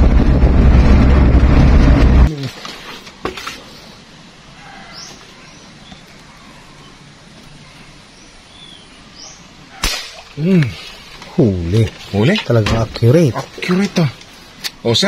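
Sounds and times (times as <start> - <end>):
airgun shot: 9.8 - 10.4.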